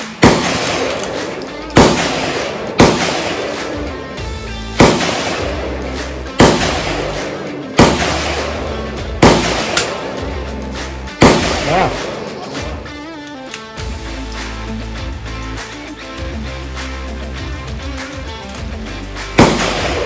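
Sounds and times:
rifle shots: 0.0s - 4.1s, 4.7s - 10.4s, 11.2s - 12.7s, 19.4s - 20.0s
background music: 0.0s - 20.0s.

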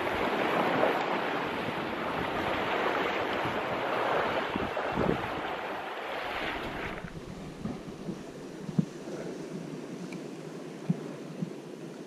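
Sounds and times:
sea swell washing against rocks: 0.0s - 9.0s
wind buffeting microphone: 0.0s - 10.1s.

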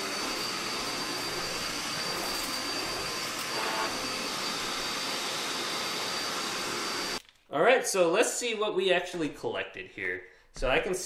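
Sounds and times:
vacuum cleaner running: 0.0s - 7.2s.

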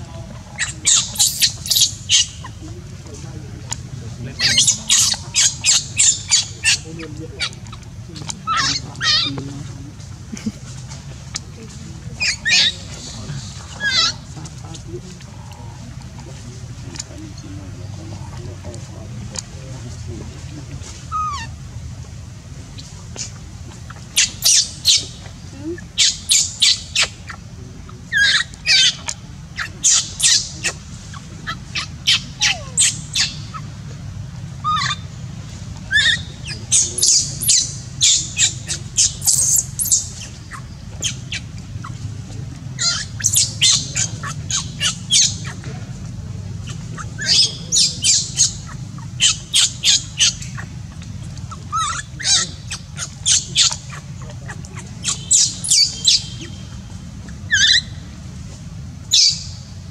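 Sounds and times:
baby monkey shrieking: 0.5s - 2.6s, 4.4s - 7.8s, 8.4s - 9.4s, 12.2s - 13.0s, 13.6s - 14.3s, 21.1s - 21.6s, 23.2s - 25.2s, 25.8s - 27.4s, 28.1s - 33.7s, 34.6s - 35.1s, 35.9s - 42.0s, 42.8s - 45.6s, 46.6s - 56.7s, 57.4s - 58.0s, 59.1s - 59.5s.

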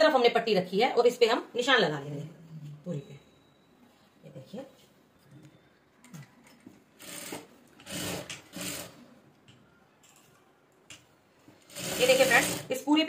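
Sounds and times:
sewing machine stitching: 7.0s - 9.0s, 11.6s - 12.8s.

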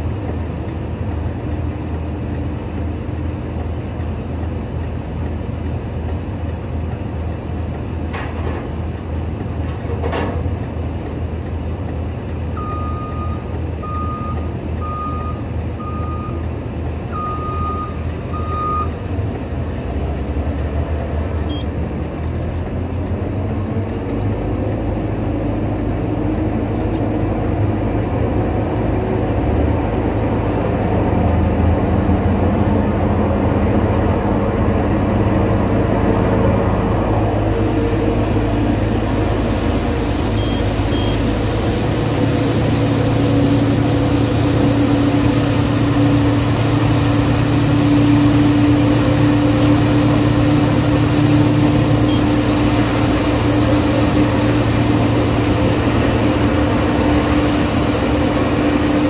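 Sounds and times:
diesel engine running: 0.0s - 59.0s
reversing alarm beeping: 12.6s - 16.5s, 17.1s - 19.0s, 21.5s - 21.7s, 39.2s - 49.2s, 51.3s - 56.5s.

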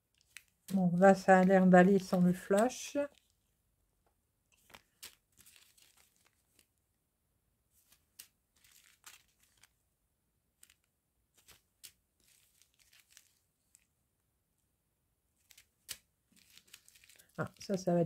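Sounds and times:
plastic bags crinkling: 0.1s - 3.4s, 4.5s - 6.8s, 7.8s - 9.8s, 10.6s - 13.9s, 15.4s - 18.0s.

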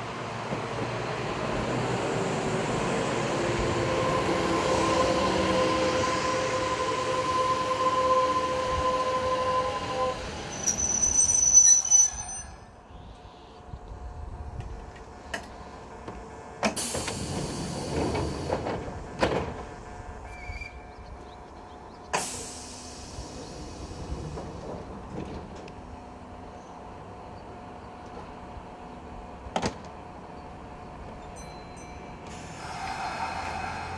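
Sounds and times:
train brakes squealing: 4.1s - 13.5s, 20.2s - 21.0s, 31.2s - 33.9s
train doors clunking: 14.6s - 20.1s, 22.1s - 26.0s, 29.4s - 30.0s.

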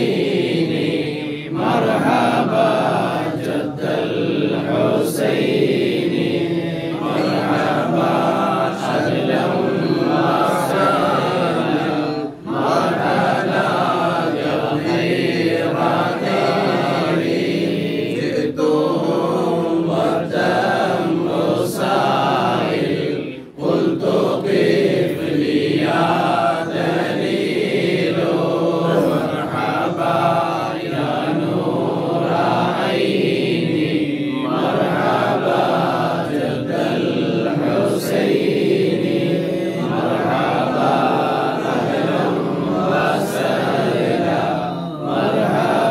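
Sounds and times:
men chanting in unison: 0.0s - 45.9s.

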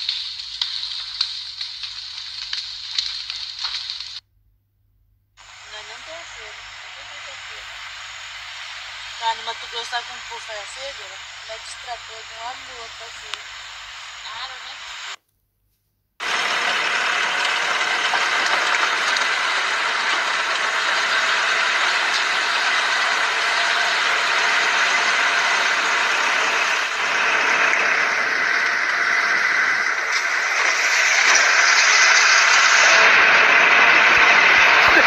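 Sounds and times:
road noise on dirt road: 16.2s - 35.0s
truck engines: 16.2s - 35.0s.

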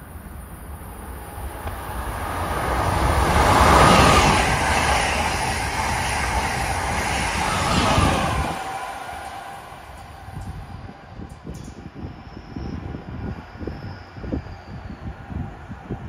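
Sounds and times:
high-speed train passing: 0.0s - 16.0s.

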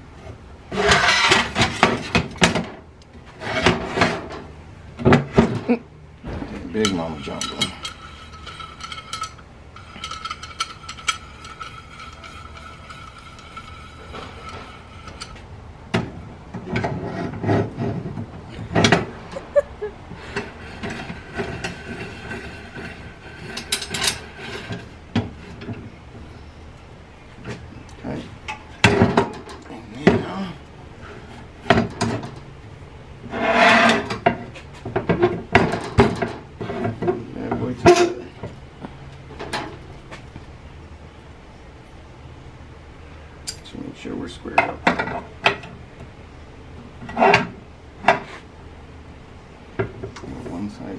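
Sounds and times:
metal scraping: 0.7s - 5.6s, 6.2s - 26.6s, 33.2s - 38.5s
steel plates clanking: 6.4s - 15.4s, 18.5s - 25.8s
clamp screw clicking and scraping: 6.8s - 15.4s.

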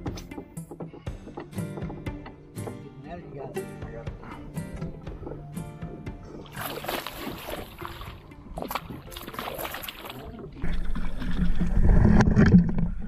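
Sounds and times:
water splashing and trickling: 4.9s - 13.0s
low rumble of water: 6.4s - 13.0s.

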